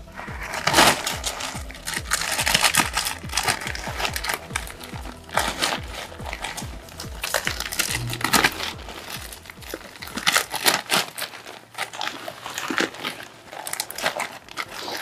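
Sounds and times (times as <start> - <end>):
dry straw rustling and crackling: 0.0 - 8.0, 9.0 - 15.0
plastic bag crinkling: 9.1 - 15.0.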